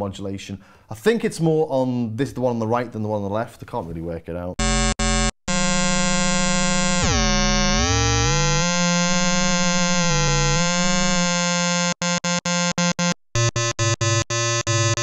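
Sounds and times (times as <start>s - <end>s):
synthesizer sustained note: 4.6s - 13.5s.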